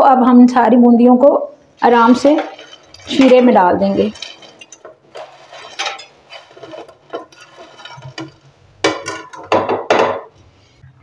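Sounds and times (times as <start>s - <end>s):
fried balls rattling into pan: 1.9s - 10.4s.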